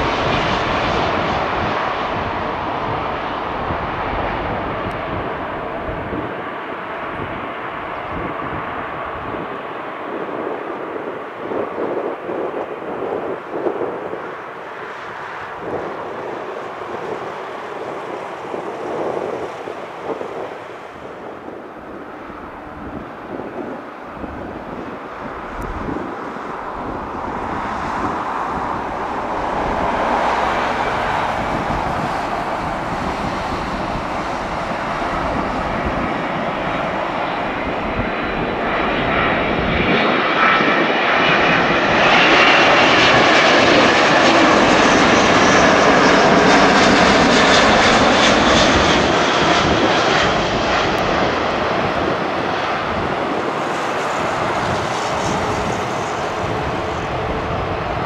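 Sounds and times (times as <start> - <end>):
jet engines rumbling: 0.0 - 58.0.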